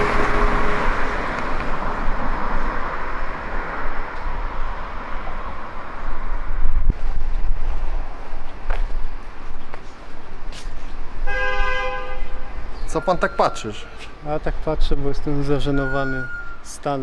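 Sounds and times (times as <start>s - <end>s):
vehicle passing: 0.0s - 11.2s.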